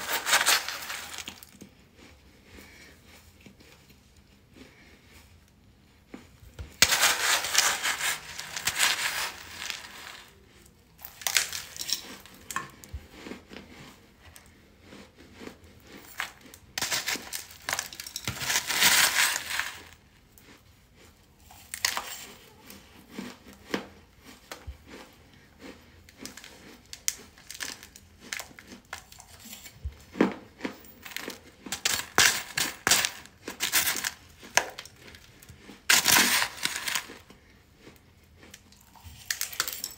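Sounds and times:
metal spoon in plastic container: 0:00.0 - 0:01.6, 0:06.7 - 0:10.4, 0:11.0 - 0:13.0, 0:16.0 - 0:20.0, 0:21.5 - 0:22.5, 0:26.2 - 0:30.0, 0:30.7 - 0:37.3, 0:38.8 - 0:39.9
baking soda crunching: 0:00.0 - 0:39.9.

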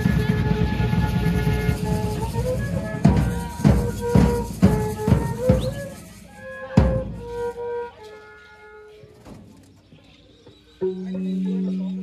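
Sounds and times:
large drum beats: 0:00.0 - 0:06.1, 0:06.8 - 0:07.5.

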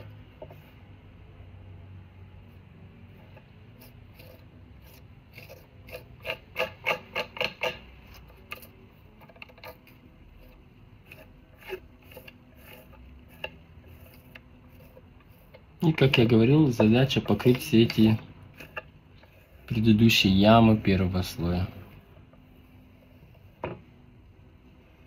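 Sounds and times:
palette knife scraping on panel: 0:03.0 - 0:19.8
sharp scraping clicks: 0:03.2 - 0:16.3.

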